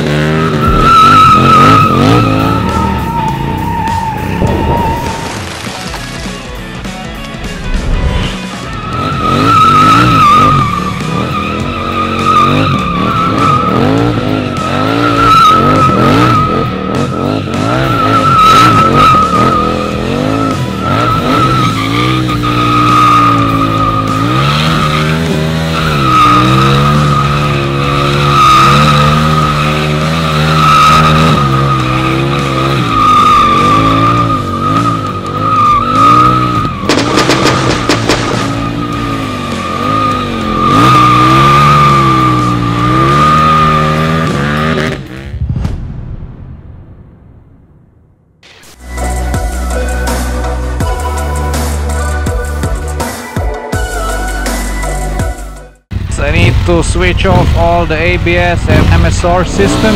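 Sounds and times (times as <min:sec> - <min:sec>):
motorcycle engine revving: 0:00.0 - 0:05.4, 0:06.7 - 0:45.6, 0:57.2 - 0:59.9
tyre squealing: 0:00.3 - 0:05.9, 0:08.2 - 0:44.9.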